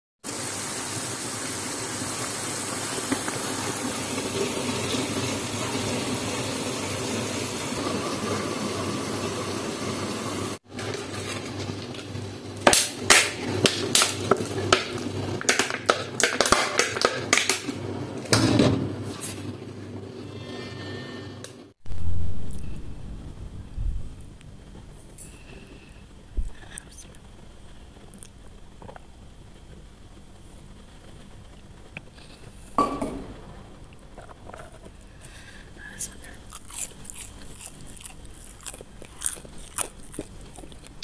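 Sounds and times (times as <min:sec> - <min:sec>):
fries sizzling in oil: 0:00.2 - 0:20.4.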